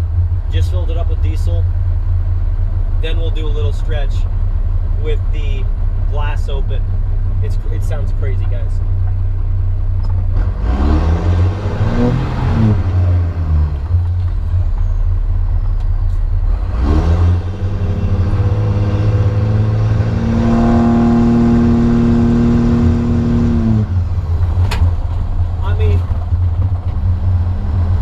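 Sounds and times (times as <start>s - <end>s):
diesel engine revving while driving: 10.0s - 28.0s.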